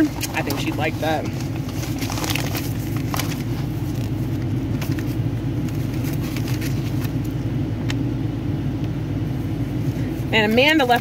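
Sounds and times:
paper crinkling: 0.0s - 7.4s
low mechanical hum: 0.0s - 11.0s.

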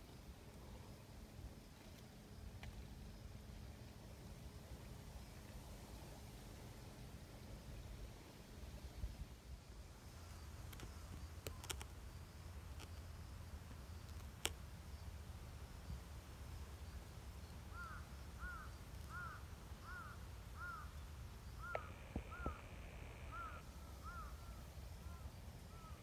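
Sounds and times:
sharp clicks: 10.7s - 11.9s, 21.6s - 23.2s
bird calling faintly: 17.7s - 26.0s.

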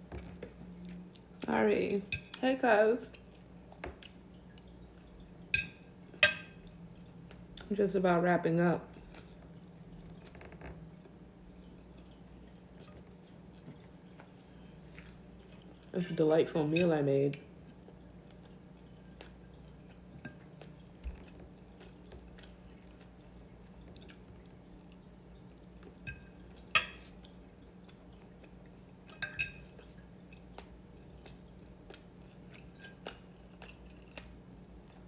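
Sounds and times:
quiet chewing: 8.9s - 16.0s, 17.4s - 35.0s.

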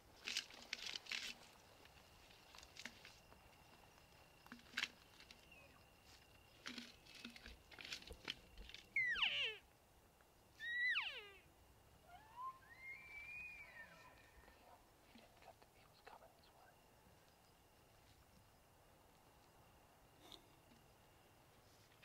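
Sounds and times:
faint clicks and rustles: 0.1s - 9.0s
elk calling: 8.9s - 9.6s, 10.6s - 14.8s.

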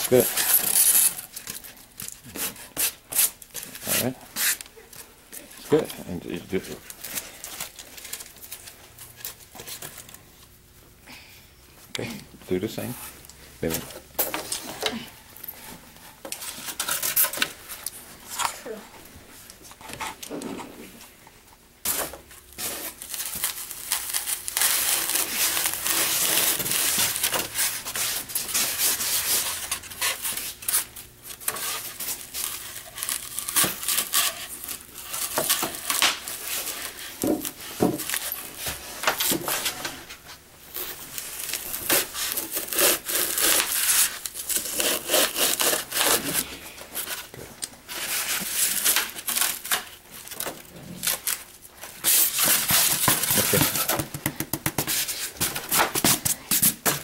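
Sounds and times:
blade sawing through foam board: 41.8s - 46.4s.

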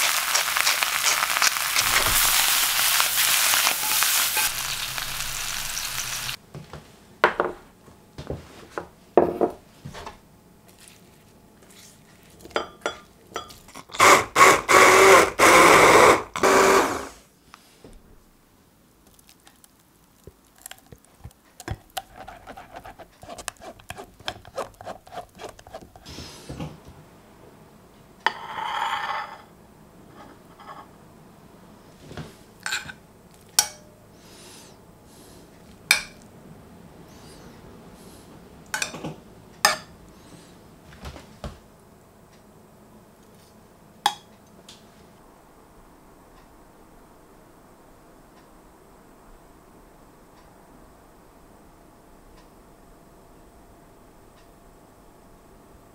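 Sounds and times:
metal spoon clinking on dishes: 12.6s - 13.6s, 32.6s - 33.0s, 38.8s - 39.0s
spatula scraping a mesh sieve: 21.9s - 26.5s.

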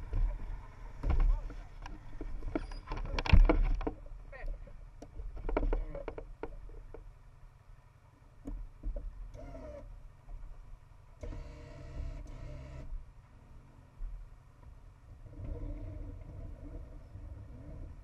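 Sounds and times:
vehicle engines idling: 0.0s - 11.2s.

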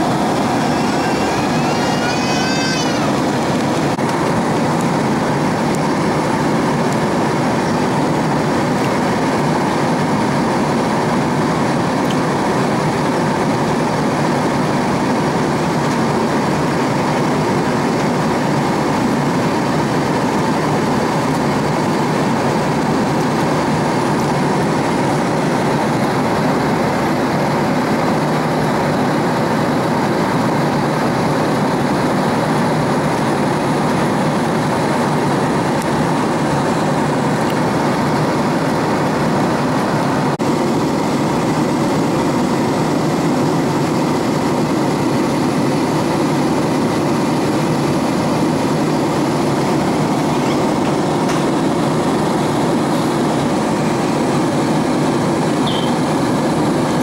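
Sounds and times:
jet engine and airflow rush: 0.0s - 57.0s.

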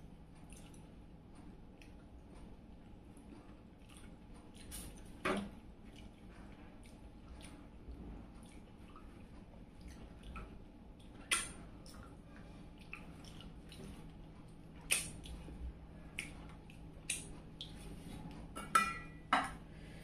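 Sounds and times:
wet mouth clicks chewing: 14.9s - 15.4s
clinks against a plate: 18.6s - 19.6s.

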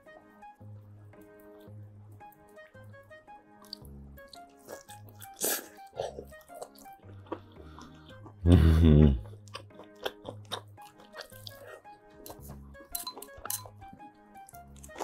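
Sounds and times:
background music: 0.0s - 15.0s
person chewing and eating: 3.6s - 15.0s.

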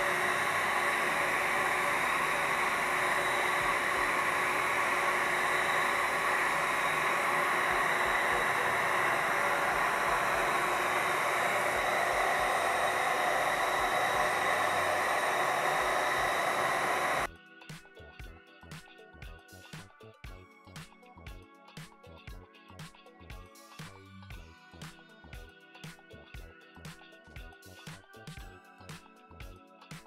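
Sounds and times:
suction fan whirring hiss: 0.0s - 17.3s.

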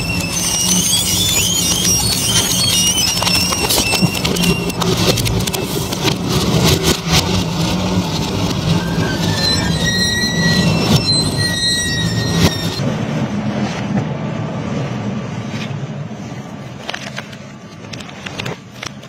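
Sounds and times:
industrial shredder humming: 0.0s - 12.8s
metal squealing and screeching: 0.0s - 12.8s.

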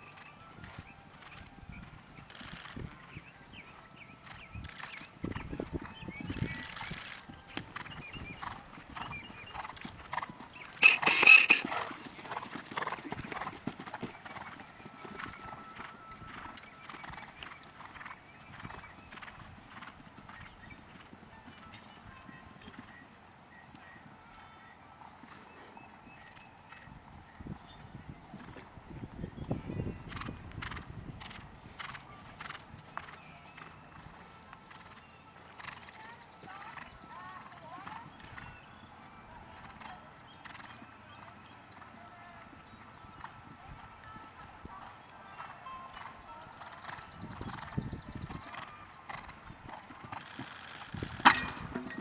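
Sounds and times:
horse hoofbeats on sand: 3.6s - 23.0s, 29.6s - 38.9s, 39.6s - 41.9s, 42.5s - 52.0s
horse breathing sharply: 10.8s - 12.1s.

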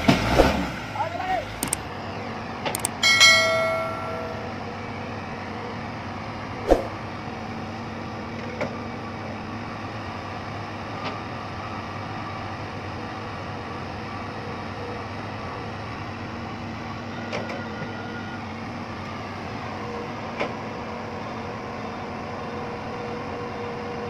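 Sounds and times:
excavator diesel engine running: 0.0s - 24.0s
metal clank: 3.0s - 4.6s
ringing chime: 3.0s - 4.8s.

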